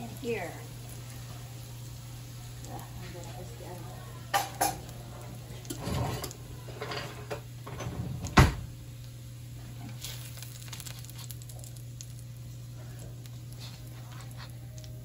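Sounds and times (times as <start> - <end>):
steady low hum: 0.0 - 15.0
spatula scraping and knocking wok: 4.3 - 7.6.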